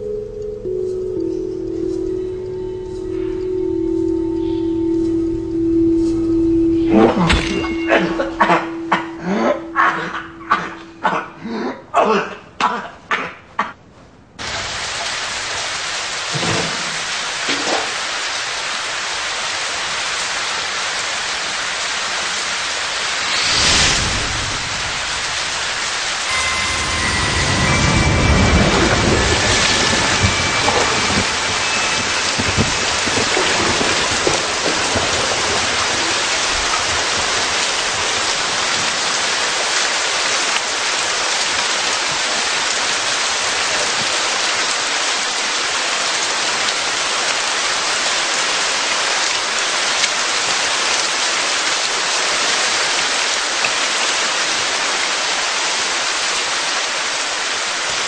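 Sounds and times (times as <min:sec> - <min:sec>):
steady rain falling: 0:00.0 - 0:12.3, 0:13.8 - 0:58.0
low rumble: 0:23.1 - 0:34.8.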